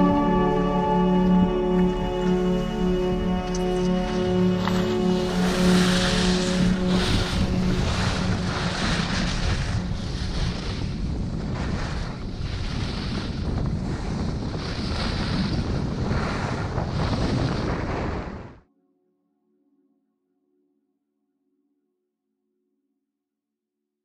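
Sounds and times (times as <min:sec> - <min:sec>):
skis carving snow: 0:03.8 - 0:18.6
wind buffeting microphone: 0:04.7 - 0:18.6.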